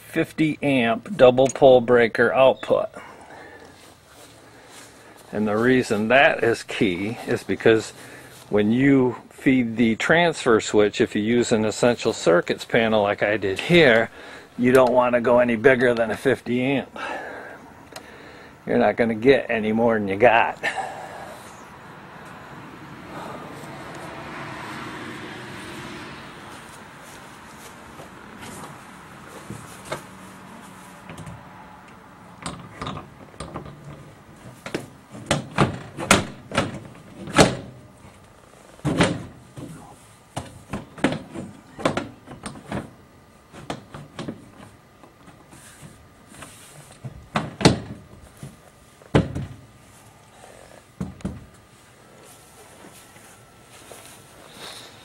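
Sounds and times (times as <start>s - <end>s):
metal panel knocks and clunks: 34.6s - 37.8s, 38.8s - 39.7s, 49.1s - 49.6s.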